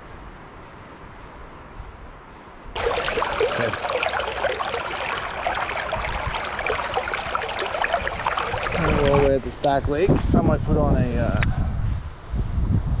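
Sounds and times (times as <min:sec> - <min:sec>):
stream trickling and burbling: 0:02.8 - 0:10.2.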